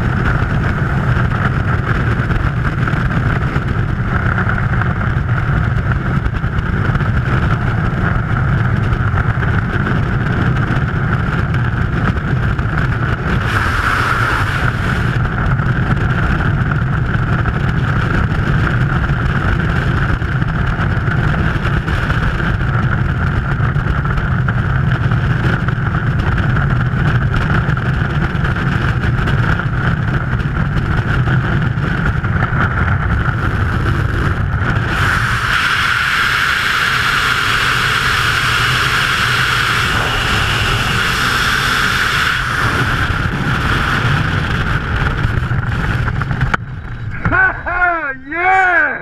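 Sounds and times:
wind buffeting a microphone: 0:00.0 - 0:48.2.

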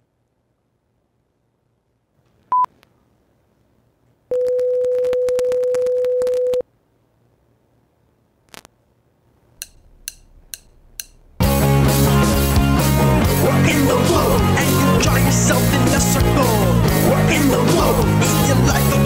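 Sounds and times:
crackling clicks: 0:08.5 - 0:08.8
steady low electronic tone: 0:09.4 - 0:14.5.

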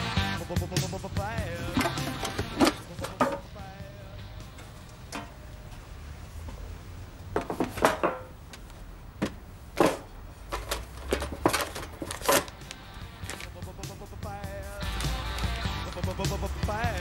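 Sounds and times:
metal tin clattering: 0:01.5 - 0:03.8, 0:04.4 - 0:05.5, 0:07.4 - 0:08.4, 0:09.8 - 0:13.8
paper rustling: 0:09.8 - 0:17.0.

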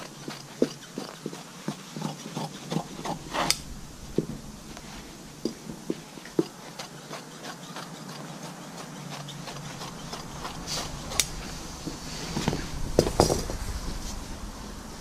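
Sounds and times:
rasping swish: 0:02.0 - 0:14.4
fabric rustling: 0:02.8 - 0:06.6, 0:09.1 - 0:14.5.

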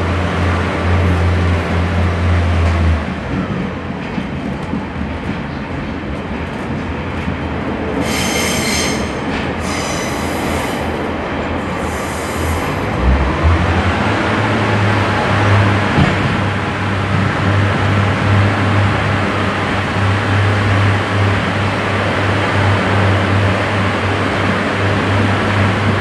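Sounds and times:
train rumble: 0:00.0 - 0:26.0
high-pitched wheel squeal: 0:08.0 - 0:10.8
low engine drone: 0:12.6 - 0:19.1.

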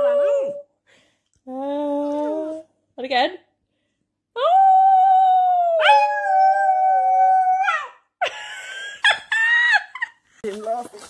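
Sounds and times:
dog howling: 0:04.5 - 0:08.0.

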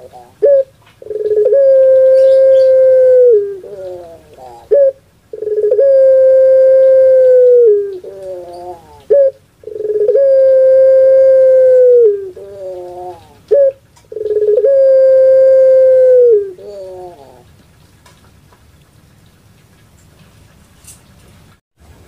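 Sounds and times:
dove cooing: 0:00.0 - 0:17.5.

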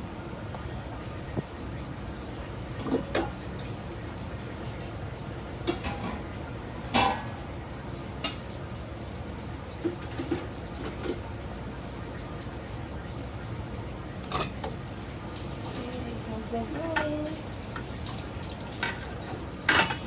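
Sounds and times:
kitchen exhaust hood hum: 0:00.0 - 0:20.0
containers and utensils clacking: 0:18.6 - 0:20.0.

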